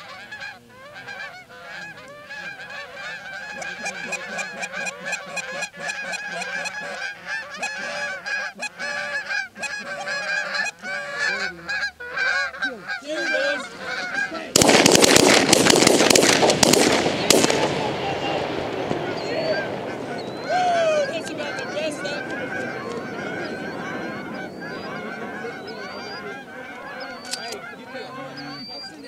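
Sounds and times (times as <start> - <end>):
geese honking: 0.0 - 29.0
shotgun fire: 14.5 - 20.1.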